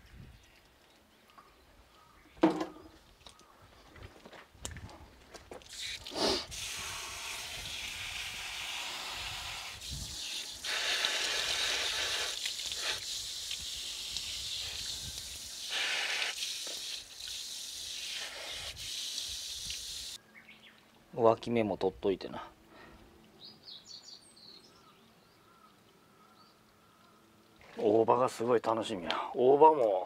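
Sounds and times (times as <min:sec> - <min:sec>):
hose nozzle spraying water: 0:05.6 - 0:20.2.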